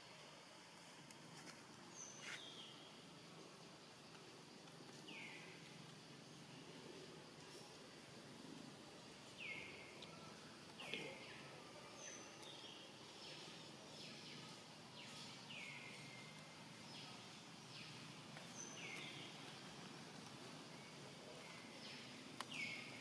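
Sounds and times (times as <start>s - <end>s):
bird calls: 21.4s - 23.0s.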